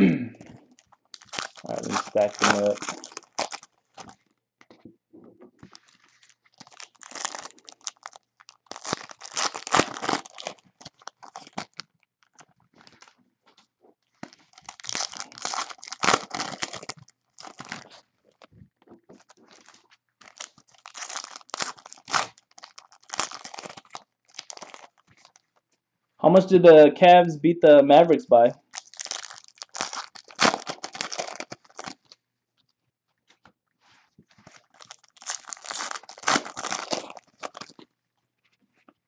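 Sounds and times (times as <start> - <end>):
foil wrappers crinkling: 0.6 - 4.2, 5.6 - 25.6, 28.6 - 32.2, 34.3 - 37.9.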